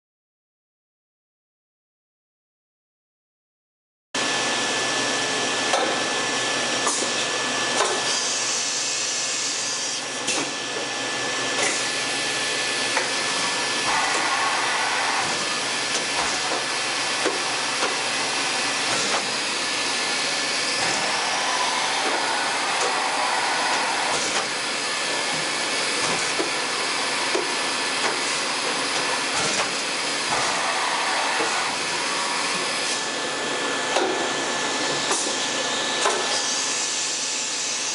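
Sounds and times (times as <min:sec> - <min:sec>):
machine mechanical whir: 0:06.8 - 0:33.1
rising whine: 0:12.8 - 0:29.3.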